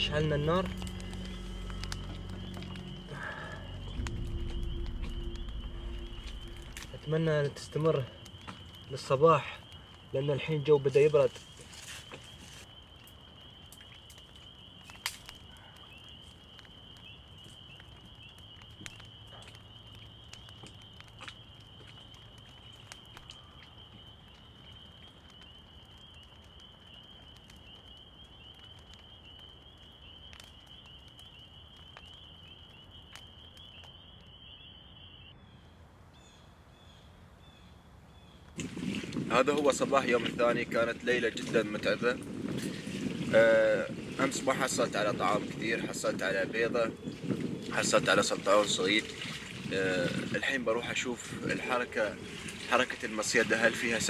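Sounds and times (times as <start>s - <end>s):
night insects trilling: 0.0s - 35.5s, 36.2s - 54.0s
wood fire crackling: 0.0s - 54.0s.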